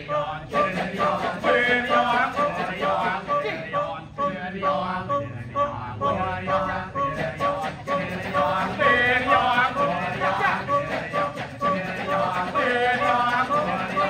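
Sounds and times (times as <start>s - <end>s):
male chorus chanting: 0.0s - 14.0s.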